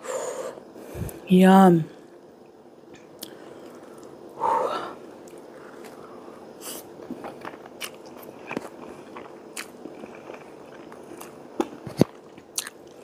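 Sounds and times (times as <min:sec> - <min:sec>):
chewing noodles: 0:06.7 - 0:13.0.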